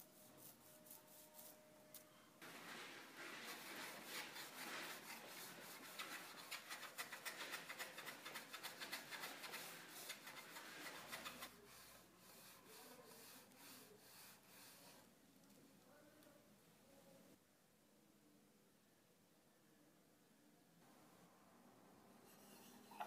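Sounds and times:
sandpaper rubbing on wood: 2.4s - 15.0s.

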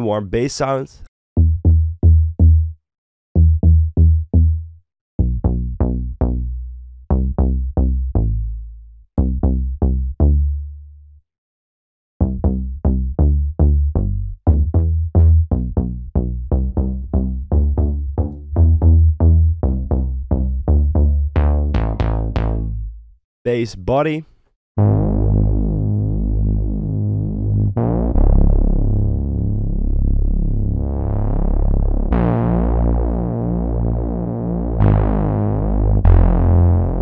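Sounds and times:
synth bass line: 1.4s - 2.8s, 3.4s - 10.8s, 12.2s - 23.2s, 24.8s - 37.0s.

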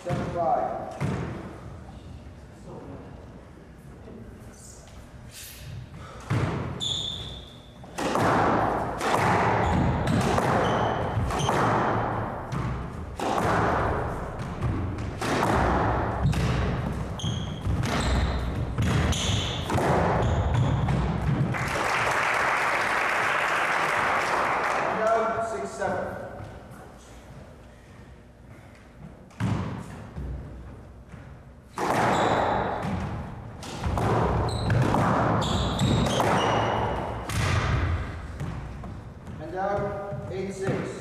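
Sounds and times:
squash ball hitting racket and walls: 0.0s - 1.8s, 5.6s - 22.0s, 28.5s - 41.0s
sneakers squeaking on wooden floor: 6.3s - 8.0s, 9.3s - 12.9s, 16.2s - 21.4s, 29.4s - 37.4s
crowd clapping: 21.5s - 25.1s.

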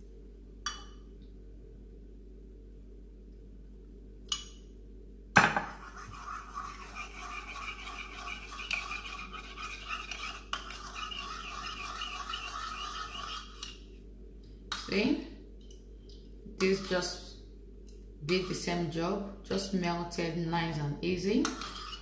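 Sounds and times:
stirrer scraping and clinking bowl: 5.7s - 13.8s, 21.4s - 22.0s.

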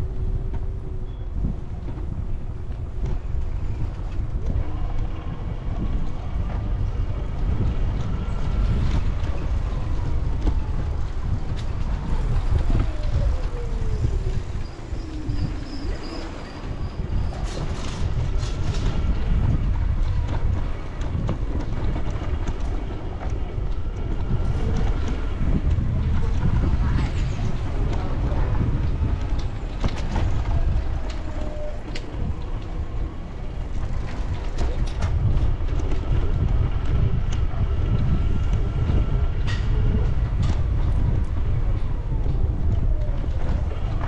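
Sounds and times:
rumble over brick paving: 0.0s - 44.0s
wind on microphone: 0.0s - 44.0s.

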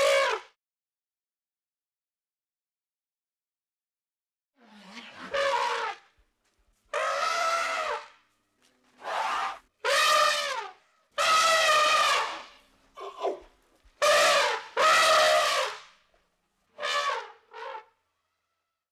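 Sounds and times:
elephant trumpeting: 4.7s - 6.0s, 6.9s - 8.1s, 9.0s - 13.4s, 14.0s - 15.8s, 16.8s - 17.9s.

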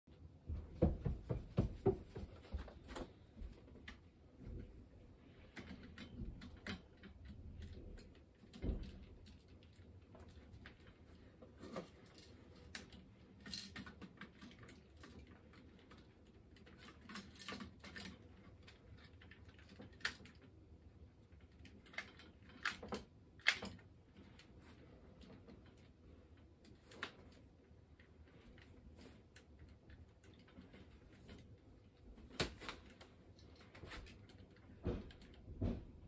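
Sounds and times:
dull knock: 0.5s - 2.4s
plastic toy parts clicking: 21.3s - 24.0s.

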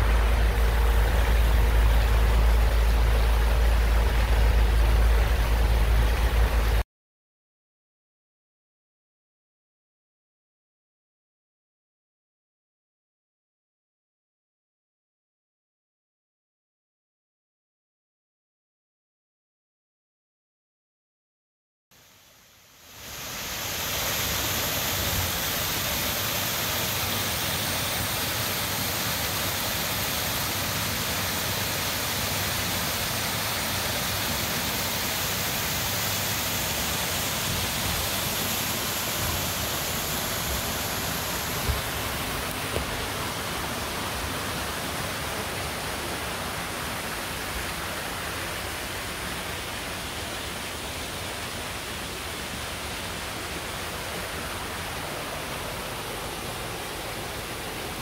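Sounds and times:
water tumbling down rocky cascade: 0.0s - 6.8s, 23.0s - 58.0s.

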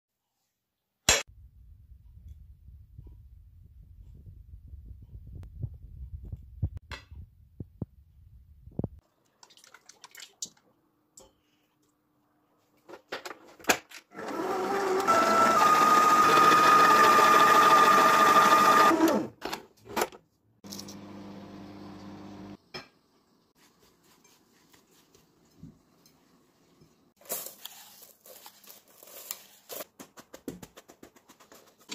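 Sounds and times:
stand mixer motor whirring: 14.2s - 19.3s.

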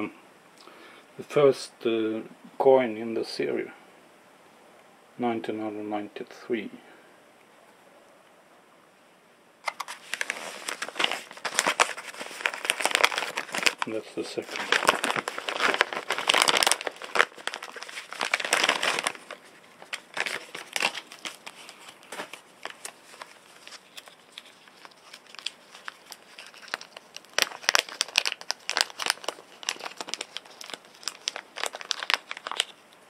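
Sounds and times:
plastic packaging crinkling: 9.6s - 32.9s.

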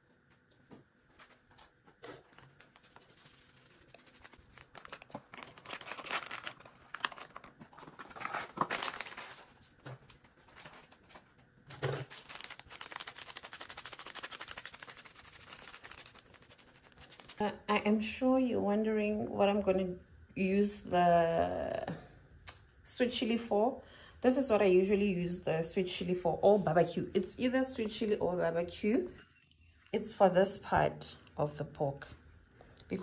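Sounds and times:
plastic sachet crinkling: 2.3s - 11.2s, 11.8s - 17.4s.

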